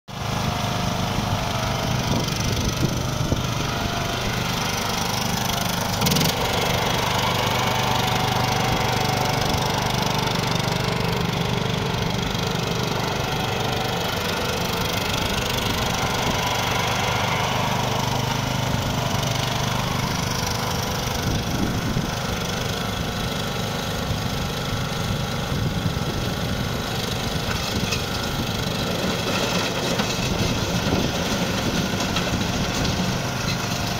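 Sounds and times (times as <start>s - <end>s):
ride-on lawnmower engine running: 0.1s - 33.9s.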